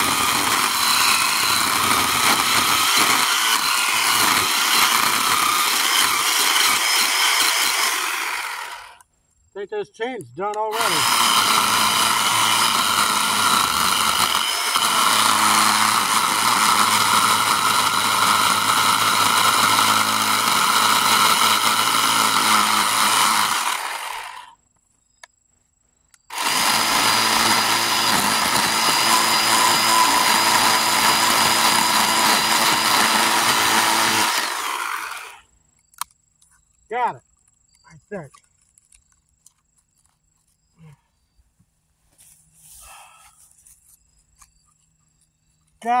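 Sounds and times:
electric chainsaw cutting wood: 0:00.0 - 0:09.0, 0:10.7 - 0:24.6, 0:26.3 - 0:35.4.

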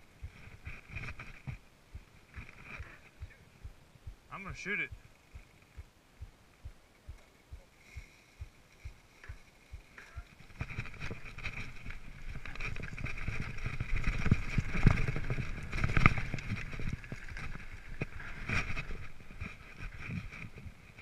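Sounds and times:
bike rattling and knocking: 0:08.4 - 0:20.7
tyres rumbling over dirt: 0:10.0 - 0:20.4.

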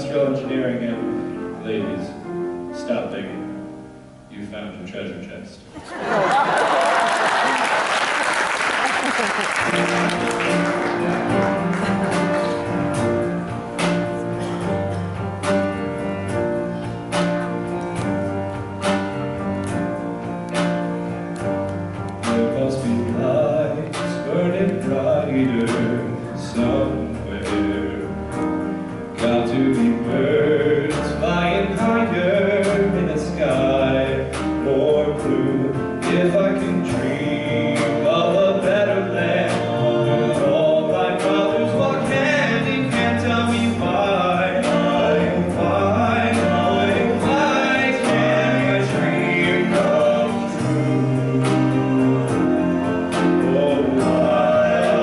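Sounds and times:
male vocal quartet singing: 0:22.2 - 0:55.0.

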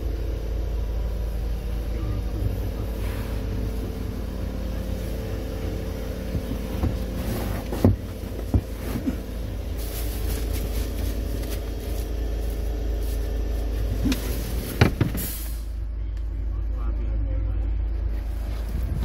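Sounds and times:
low hum: 0:00.0 - 0:19.0
sharp crackles and knocks: 0:06.2 - 0:15.3.

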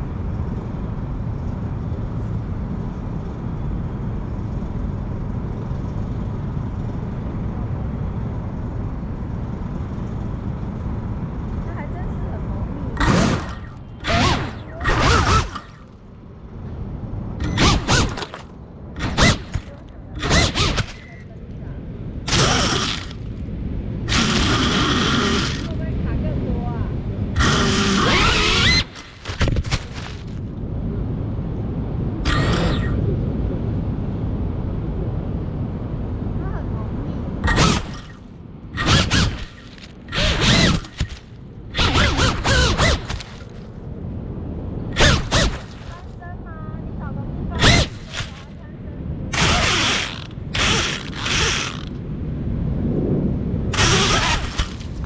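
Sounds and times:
drone motors whining: 0:09.3 - 0:26.6, 0:27.2 - 0:30.6, 0:32.1 - 0:33.8, 0:37.4 - 0:43.8, 0:44.9 - 0:46.2, 0:47.5 - 0:48.7, 0:49.3 - 0:52.1, 0:53.7 - 0:55.0
rushing air: 0:47.6 - 0:55.0.

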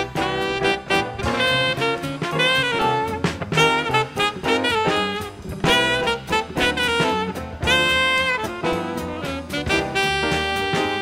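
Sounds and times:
alto saxophone bebop line: 0:00.0 - 0:11.0
piano bass and drums: 0:00.0 - 0:11.0.

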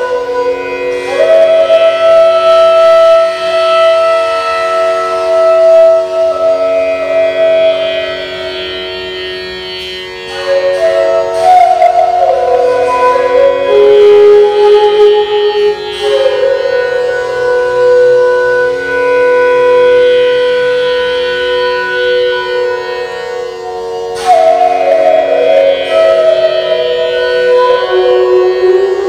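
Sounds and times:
bamboo flute playing: 0:00.0 - 0:29.0.

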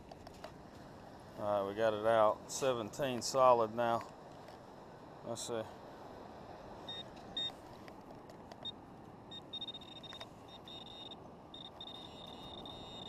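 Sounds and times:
sand and grit clicks: 0:00.0 - 0:04.6, 0:07.1 - 0:08.7
pinpointer probe beeping: 0:08.6 - 0:13.0.

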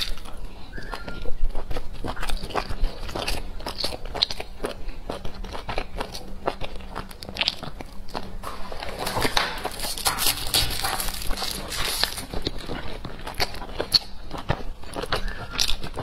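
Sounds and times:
person chewing food: 0:00.0 - 0:16.0
rustling: 0:04.5 - 0:16.0.

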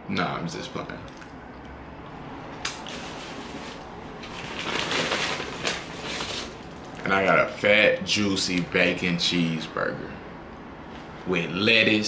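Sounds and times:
paper bag rustling and crinkling: 0:02.8 - 0:07.0.

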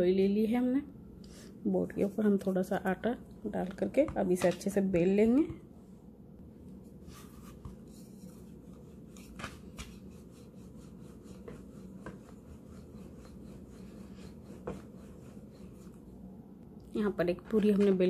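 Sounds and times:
steady low hum: 0:00.0 - 0:18.0
rolling pin rubbing dough: 0:06.8 - 0:16.3.

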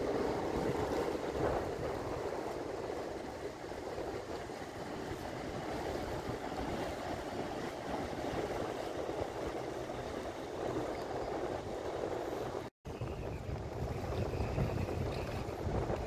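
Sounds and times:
water lapping at shoreline: 0:00.0 - 0:12.7
wind buffeting microphone: 0:00.0 - 0:16.0.

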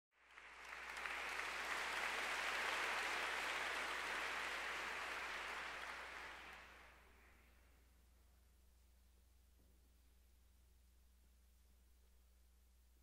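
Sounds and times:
audience applause: 0:00.2 - 0:07.1.

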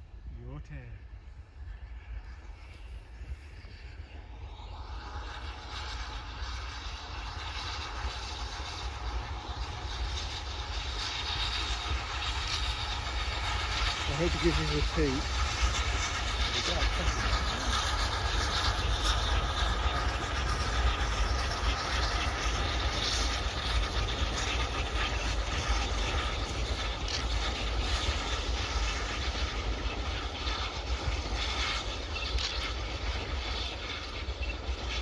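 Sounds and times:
distant steam locomotive passing: 0:00.0 - 0:35.0
wind rumble on microphone: 0:00.0 - 0:35.0.

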